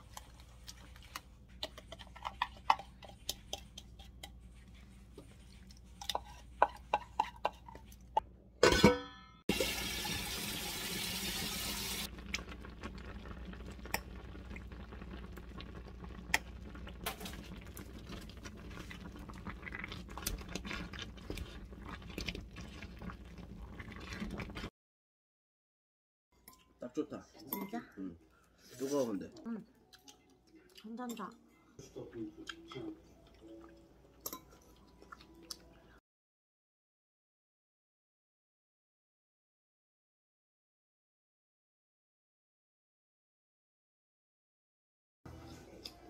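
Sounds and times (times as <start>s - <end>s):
spoon scraping a bowl: 0.0s - 8.1s
pot simmering: 0.0s - 8.2s, 9.5s - 24.7s.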